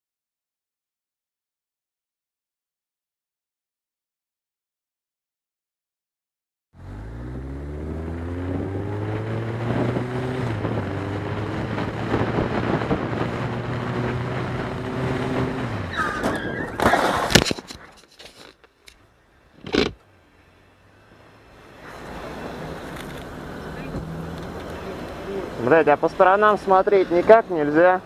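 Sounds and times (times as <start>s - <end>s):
tyre squeal: 15.8s - 17.3s
motorcycle crashing into car: 16.0s - 17.7s.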